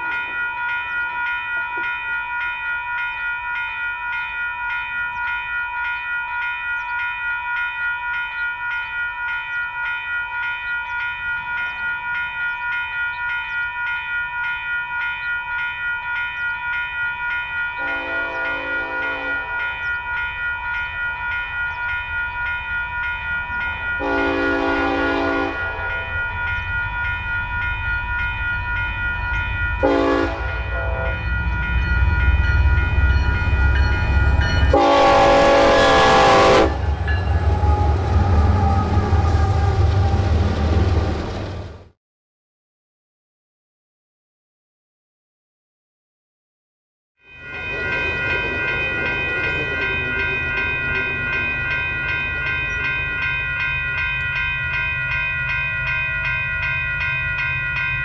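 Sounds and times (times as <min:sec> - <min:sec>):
crossing bell ringing: 0:00.0 - 0:41.4, 0:47.2 - 0:58.0
train engine and wheel rumble: 0:00.0 - 0:42.0, 0:47.3 - 0:58.0
locomotive horn: 0:17.8 - 0:19.6, 0:24.0 - 0:26.0, 0:29.8 - 0:31.2, 0:34.7 - 0:40.4.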